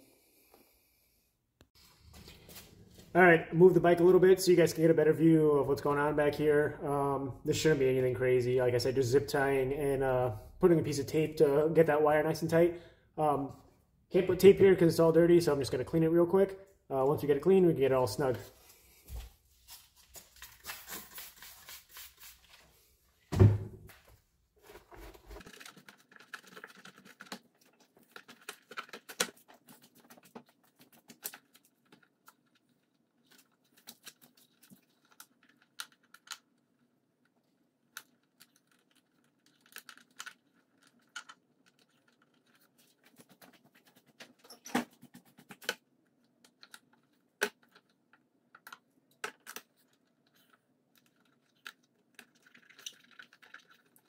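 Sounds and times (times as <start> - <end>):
wiping rustle: 18.5 - 22.9.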